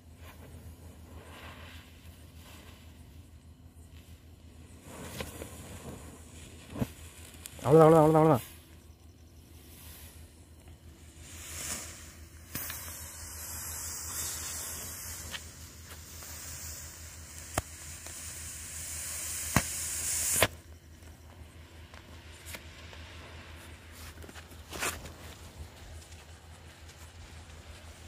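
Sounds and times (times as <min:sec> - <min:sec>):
smoke crackers hissing: 0:00.0 - 0:28.0
sharp cracks: 0:12.4 - 0:16.6, 0:17.2 - 0:18.4, 0:19.2 - 0:20.6.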